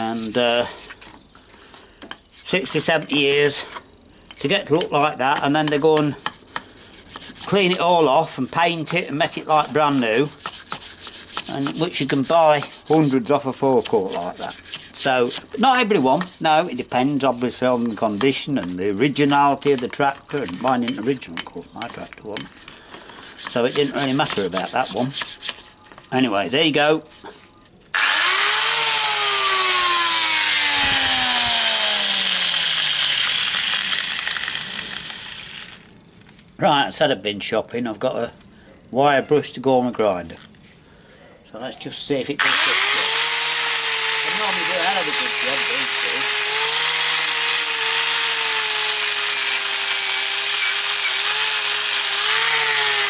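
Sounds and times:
angle grinder with wire brush: 0.0 - 1.1, 4.4 - 35.9, 42.4 - 53.0
angle grinder motor whine: 27.9 - 35.9, 42.4 - 53.0.

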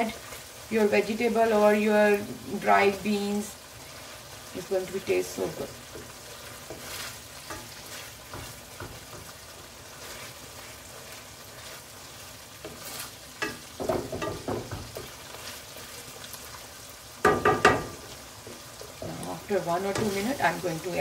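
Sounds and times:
paste sizzling in oil: 0.0 - 21.0
wooden spatula scraping a pan: 5.0 - 16.4, 17.8 - 21.0.

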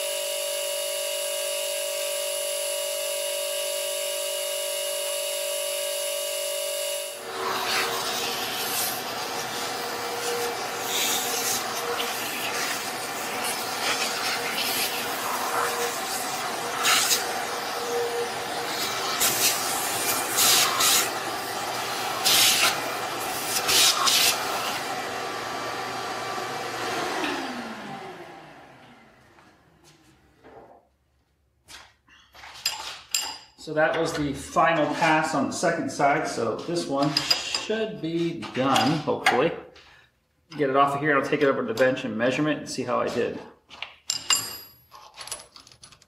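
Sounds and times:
vacuum motor winding down: 0.0 - 30.0
shop vacuum running: 0.0 - 30.8, 33.6 - 39.3.

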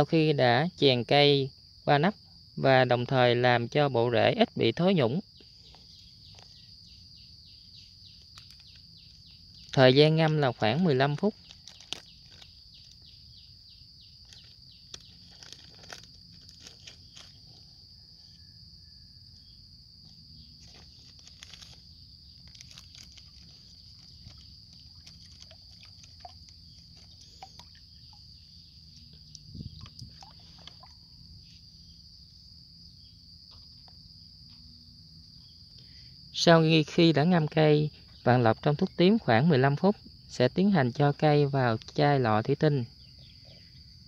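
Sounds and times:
insects trilling: 0.0 - 44.0
packet rustling: 11.2 - 13.0, 14.2 - 17.6, 20.6 - 27.6
water stirred in plastic tub: 22.4 - 28.3.

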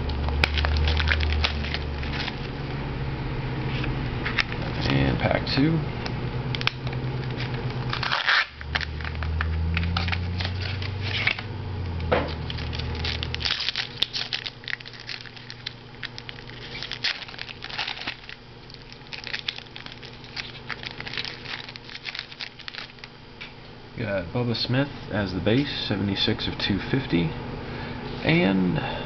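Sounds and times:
low steady hum: 0.0 - 29.0
foil wrapper tearing and crinkling: 0.2 - 2.5, 6.6 - 11.5, 12.3 - 23.1.

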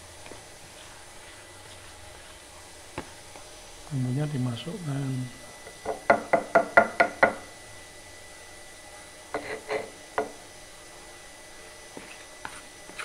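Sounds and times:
stone pestle knocking in mortar: 5.9 - 7.4.

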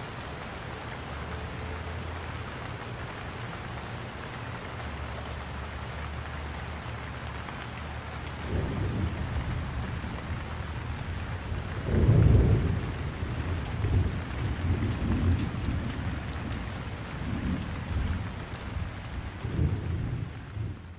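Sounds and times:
steady rain falling: 0.0 - 20.9
thunder rumbling: 8.4 - 20.9.

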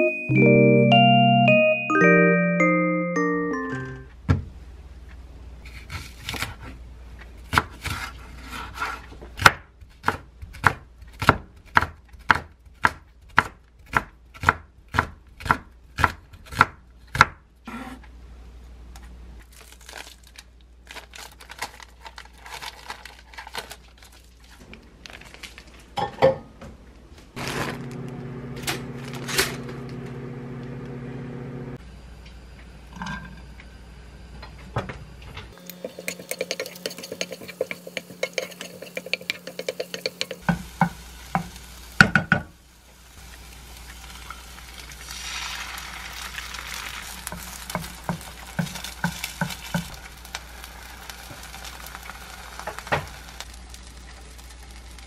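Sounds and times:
knife chopping on wooden board: 7.5 - 18.0.

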